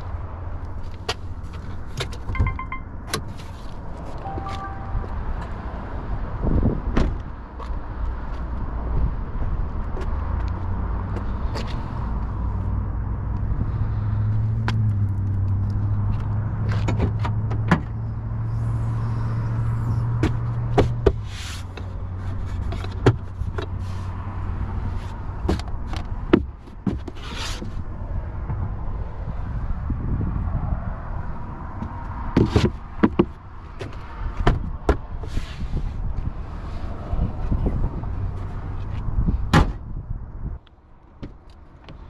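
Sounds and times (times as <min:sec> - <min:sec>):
low hum: 0:04.2 - 0:05.8
car hood latch clicks and clunks: 0:39.5 - 0:39.8.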